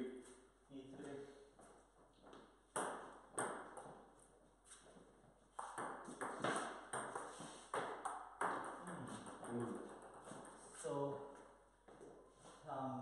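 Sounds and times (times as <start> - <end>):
table tennis ball hits: 2.7 - 4.1, 5.5 - 10.6.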